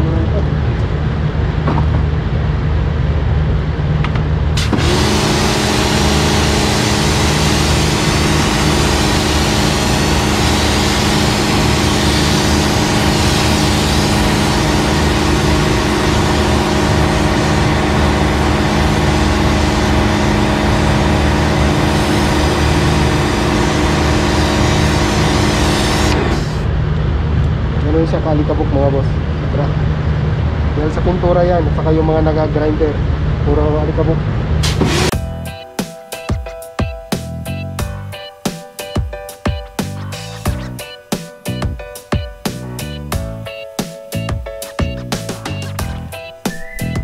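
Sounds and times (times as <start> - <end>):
pump motor whine: 0.0 - 27.8, 33.0 - 35.6
low hum: 0.0 - 35.7
pressure washer spray hissing: 4.6 - 26.7, 34.6 - 35.2.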